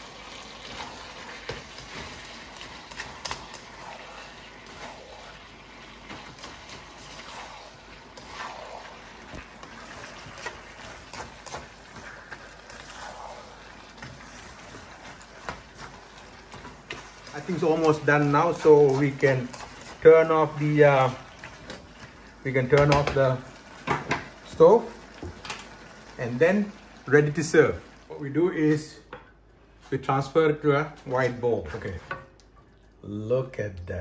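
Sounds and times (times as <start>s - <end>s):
stir-fry swishing and sloshing: 0.0s - 25.2s.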